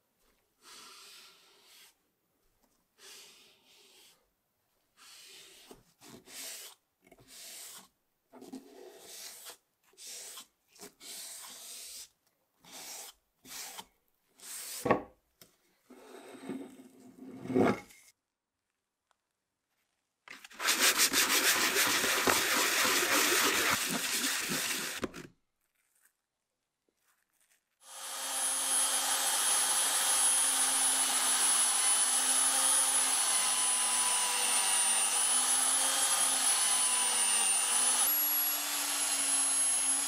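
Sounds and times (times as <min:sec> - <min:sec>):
hand sanding wood: 0:05.0 - 0:07.9, 0:20.4 - 0:25.2.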